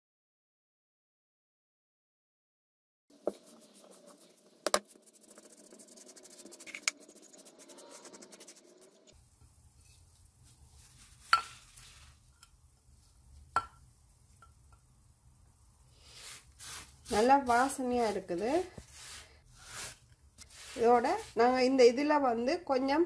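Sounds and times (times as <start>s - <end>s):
spice paste scraped off stone grinder: 3.2s - 9.1s, 16.1s - 21.5s.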